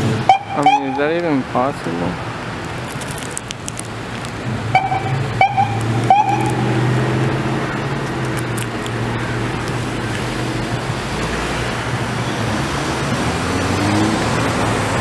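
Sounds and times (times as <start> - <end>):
street traffic: 0.0 - 15.0
car engine pulling away: 2.1 - 15.0
short high horn toots: 4.8 - 6.8.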